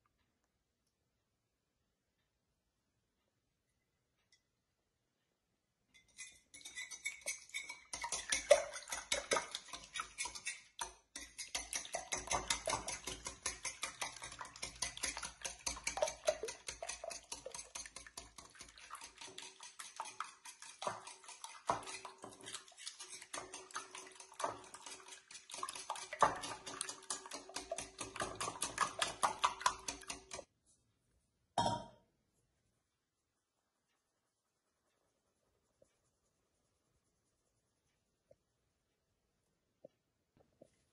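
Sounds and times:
wire whisk clinking on glass bowl: 6.0s - 30.5s.

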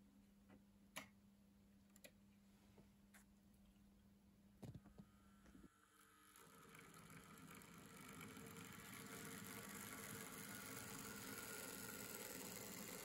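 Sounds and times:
model train motor whirring: 5.7s - 13.0s.

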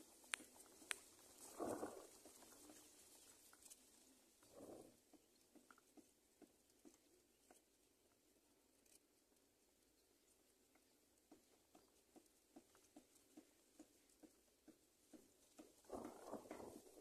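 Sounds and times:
faint soft ticks: 0.2s - 1.9s.

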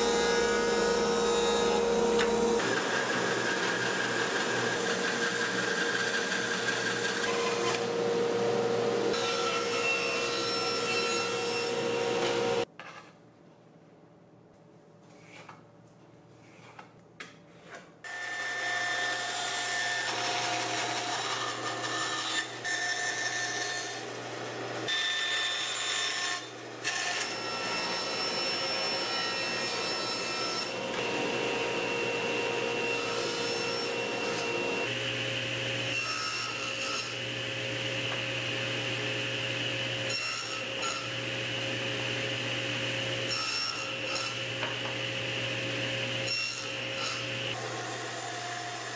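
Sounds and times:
dust collector hum: 0.0s - 9.2s
table saw cutting wood: 0.0s - 12.7s, 18.1s - 48.9s.

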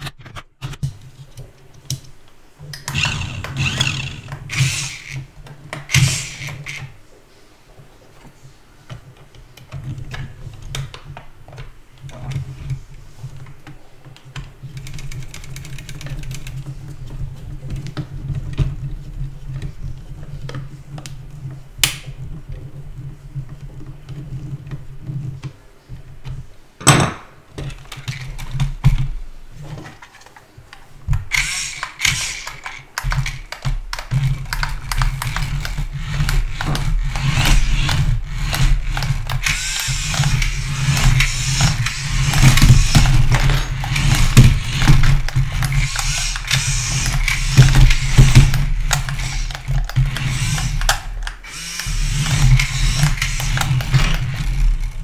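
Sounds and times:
toy truck motors whirring: 2.8s - 7.0s, 31.3s - 55.0s
steady low hum: 31.2s - 55.0s
metal parts clicking and tapping: 31.3s - 55.0s.

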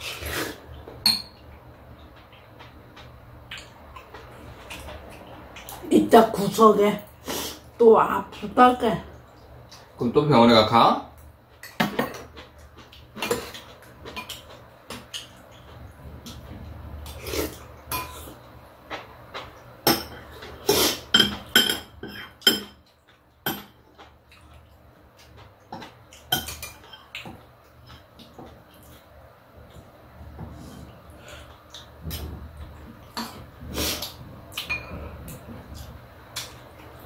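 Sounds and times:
utensils clinking on ceramic bowls: 1.1s - 1.4s, 34.6s - 35.0s.

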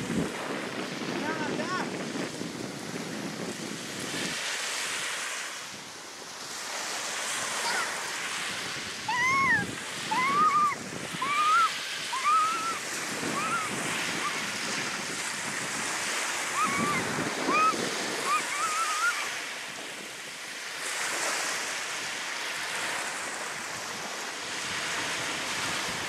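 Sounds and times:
small waves breaking on beach: 0.0s - 26.0s
wind on microphone: 0.0s - 26.0s
short high rising falling calls: 9.1s - 14.4s, 16.5s - 19.3s.

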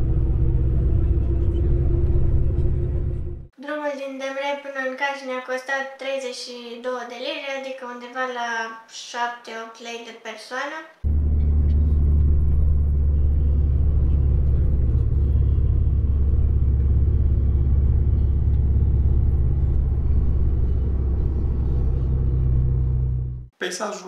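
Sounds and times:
bus engine rumble: 0.0s - 3.5s, 11.1s - 23.5s
road noise: 0.0s - 3.5s, 11.1s - 23.5s.

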